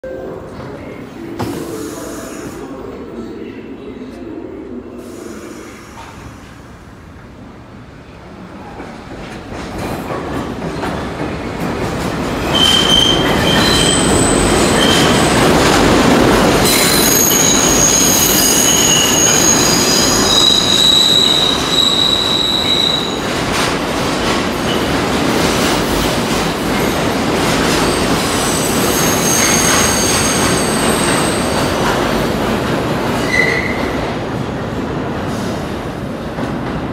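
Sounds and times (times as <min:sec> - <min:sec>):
subway train rumble: 0:00.0 - 0:36.9
train wheels squealing: 0:12.4 - 0:15.4, 0:16.6 - 0:23.3, 0:27.8 - 0:31.7, 0:33.2 - 0:34.0.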